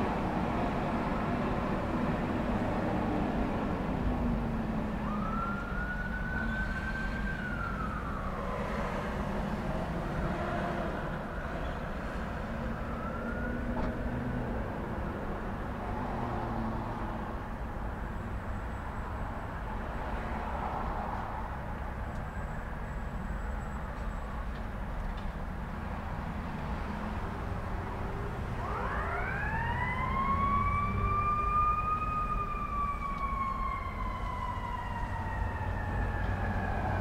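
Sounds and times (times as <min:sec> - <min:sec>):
road traffic rumble: 0:00.0 - 0:37.0
siren wailing: 0:05.0 - 0:09.1, 0:12.6 - 0:13.8, 0:28.5 - 0:37.0.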